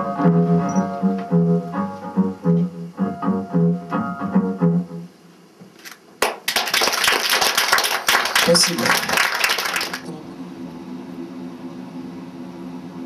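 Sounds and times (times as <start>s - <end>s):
audience applause: 6.2s - 10.1s.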